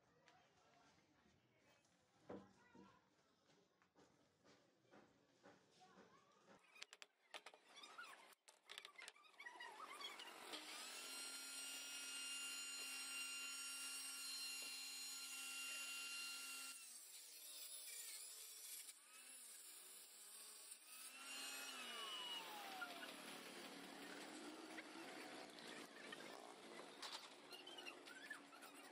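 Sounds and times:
table saw whine: 9.7s - 17.1s, 20.6s - 28.9s
saw cutting board: 9.7s - 28.9s.

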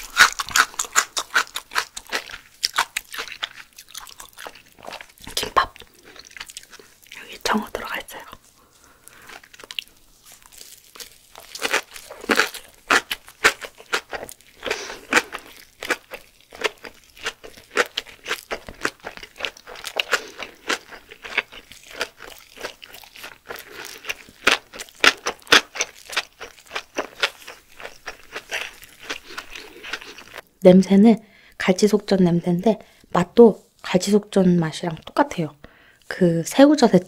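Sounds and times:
wet crunchy chewing: 0.0s - 7.2s, 8.2s - 30.4s.

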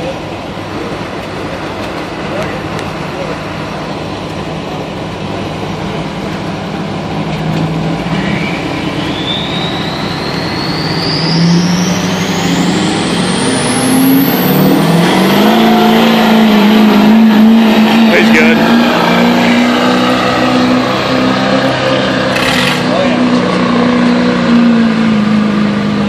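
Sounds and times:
diesel truck engine under load: 0.0s - 26.0s
high whine: 0.0s - 26.0s.

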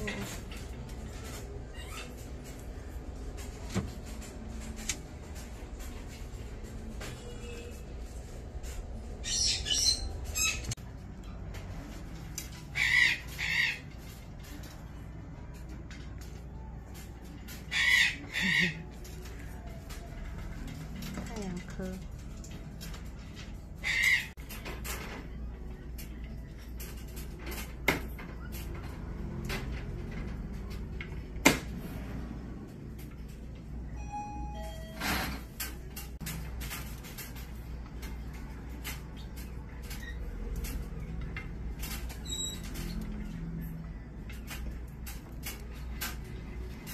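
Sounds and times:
parrots squawking: 1.3s - 2.5s, 9.2s - 10.8s, 12.5s - 14.2s, 17.5s - 19.2s, 23.8s - 24.4s.

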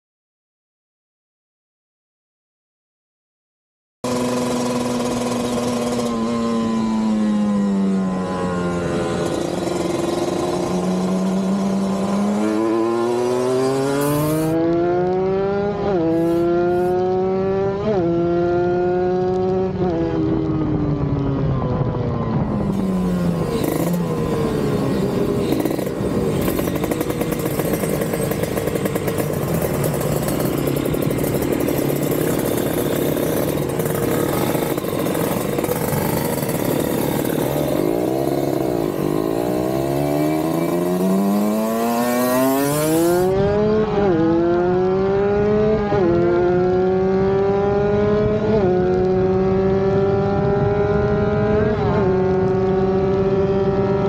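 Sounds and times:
motorcycle engine high revs: 4.0s - 20.4s, 22.6s - 54.0s
rushing wind noise: 45.4s - 54.0s.

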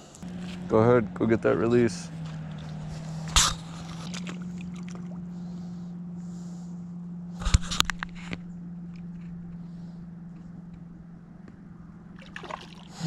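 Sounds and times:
low hum: 0.0s - 13.0s
fish splashing in water: 2.2s - 5.6s, 12.1s - 13.0s.

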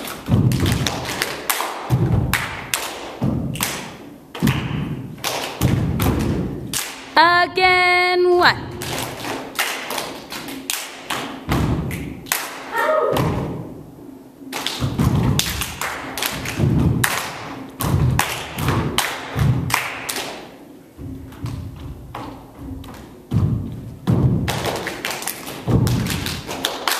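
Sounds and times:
hands clapping and slapping: 0.0s - 7.2s, 8.8s - 13.4s, 14.5s - 20.6s, 24.1s - 26.9s
feet stamping on wooden floor: 21.0s - 24.5s.

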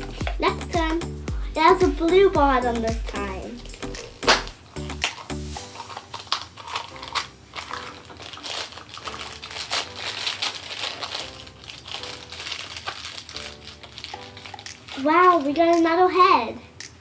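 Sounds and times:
plastic packaging crinkling: 3.5s - 16.0s.

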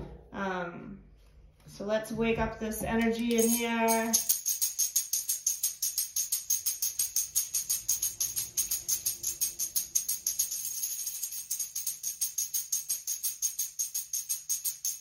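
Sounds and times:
tambourine shaken: 3.1s - 15.0s.

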